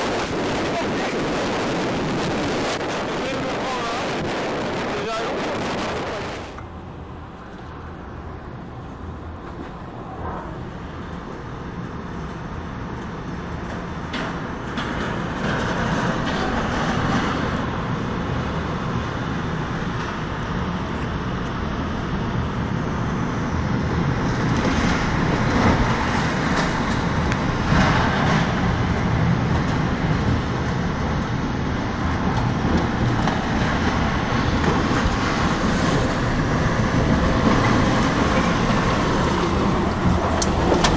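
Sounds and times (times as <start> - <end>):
tornado wind roaring: 0.0 - 40.9.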